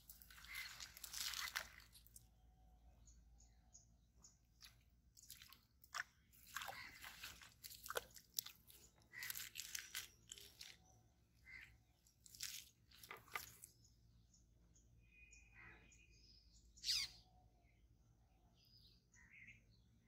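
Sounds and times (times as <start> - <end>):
crackling and rustling: 0.0 - 2.2, 12.2 - 13.7
small water splash: 0.0 - 2.3, 4.5 - 13.8.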